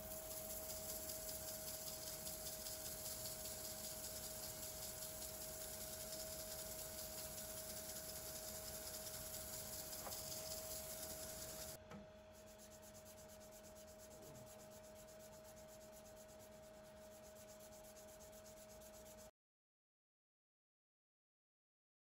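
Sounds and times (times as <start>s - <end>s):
hiss: 0.0s - 11.8s
sandpaper rubbing on wood: 0.0s - 11.8s, 12.4s - 19.3s
faint steady hum: 0.0s - 19.2s.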